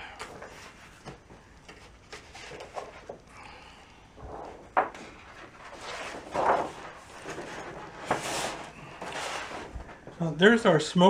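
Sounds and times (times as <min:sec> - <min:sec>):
plastic sheet rustling and flexing: 0:04.2 - 0:10.0.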